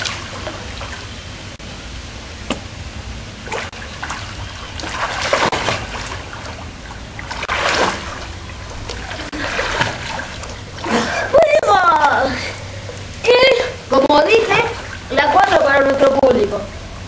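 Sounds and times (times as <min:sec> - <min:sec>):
pool water splashing and sloshing: 0:00.0 - 0:17.0
loud splashes: 0:03.4 - 0:11.6.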